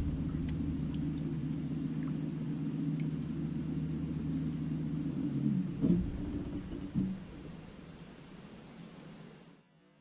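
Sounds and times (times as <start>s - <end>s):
electric trolling motor humming: 0.0s - 8.4s
faint ticks: 0.4s - 3.3s.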